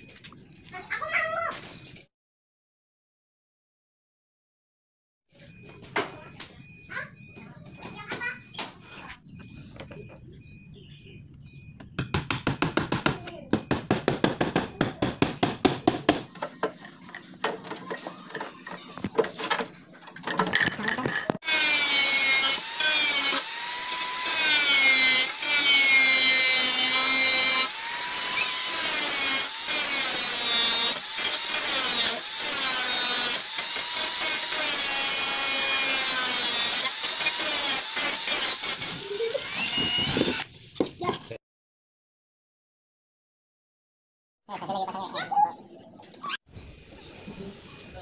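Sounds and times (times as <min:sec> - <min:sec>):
power tool cutting plywood: 0:21.4 - 0:40.5.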